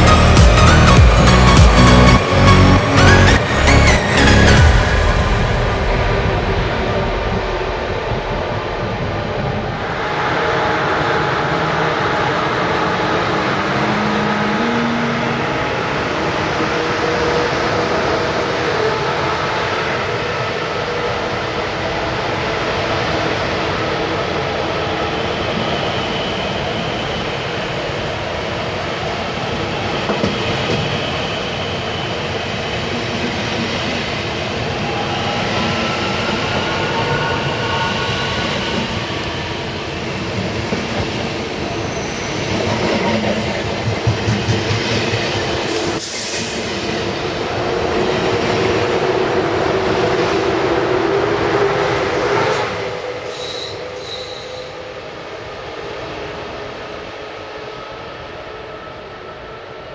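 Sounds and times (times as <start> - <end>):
train rolling over rails: 0.0 - 59.9
wheel squeal: 53.2 - 54.8.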